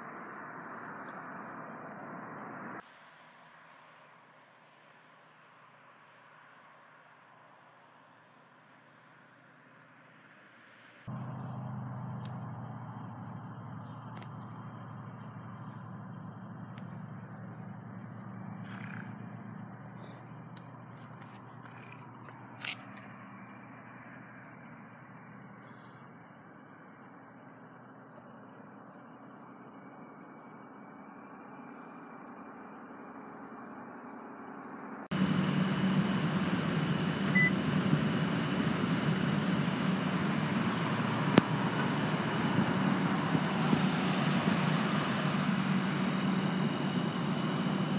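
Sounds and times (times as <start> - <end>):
crickets trilling: 0.0 - 2.8, 11.1 - 35.1, 41.4 - 47.9
urban ambience rumble: 0.0 - 47.9
fast high insect pulsing: 11.1 - 35.0.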